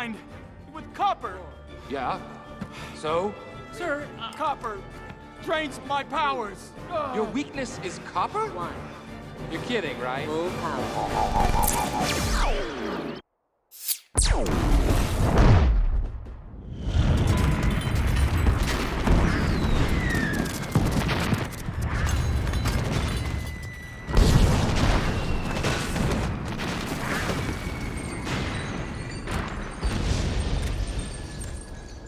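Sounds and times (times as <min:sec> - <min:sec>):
film score music: 0:00.0 - 0:13.2
huge explosion rumbling: 0:24.1 - 0:31.5.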